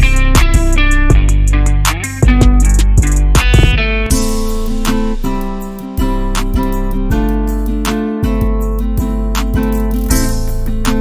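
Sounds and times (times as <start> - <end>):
plucked-string instrumental music: 0.0 - 11.0.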